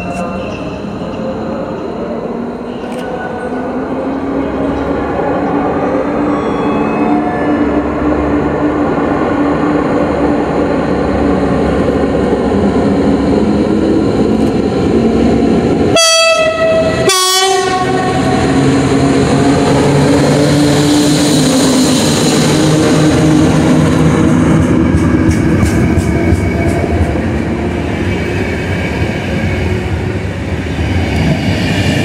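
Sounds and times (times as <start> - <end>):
electric locomotive motors and wheels: 0.0 - 16.0
train horn blasts: 15.9 - 18.4.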